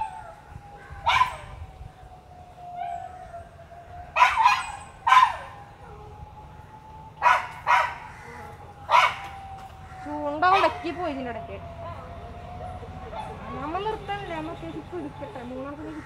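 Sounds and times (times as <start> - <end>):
dog barking: 1.0 - 1.4, 4.2 - 5.5, 7.2 - 8.1, 8.9 - 9.3.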